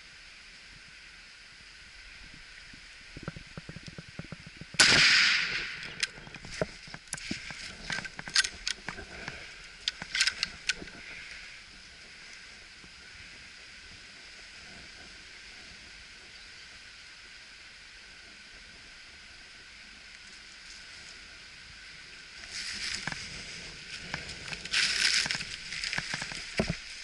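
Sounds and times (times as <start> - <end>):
rustling: 3.0 - 12.5, 22.4 - 27.0
rifle shot: 4.8 - 6.0
sharp clicks: 9.8 - 11.0.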